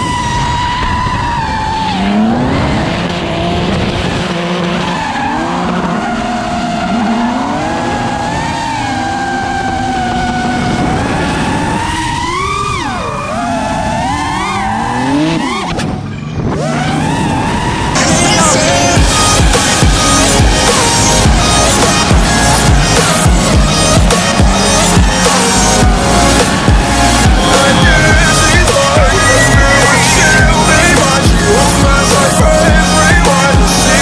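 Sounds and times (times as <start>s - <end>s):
car engine at high revs: 0.0s - 34.0s
drone motors whining: 0.0s - 34.0s
tyres screeching: 16.6s - 34.0s.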